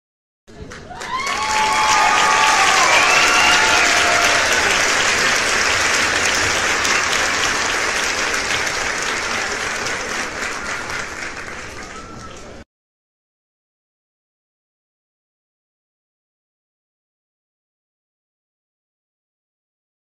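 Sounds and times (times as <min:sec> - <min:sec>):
crowd cheering and clapping: 0:00.5 - 0:12.6.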